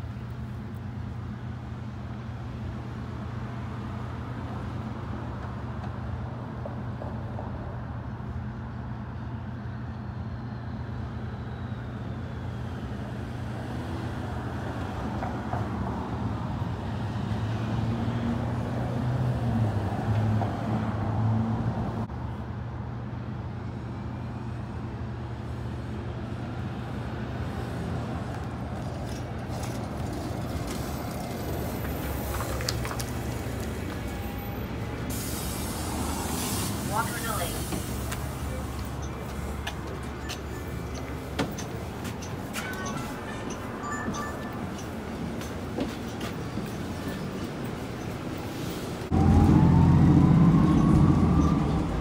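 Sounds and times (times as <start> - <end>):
bus diesel engine hum: 0.0 - 52.0
street traffic: 0.0 - 52.0
bus air brake hisses: 35.1 - 38.4.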